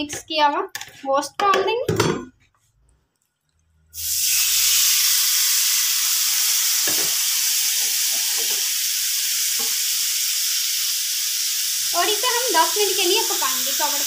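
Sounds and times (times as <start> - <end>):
chicken sizzling in pan: 4.0 - 14.0.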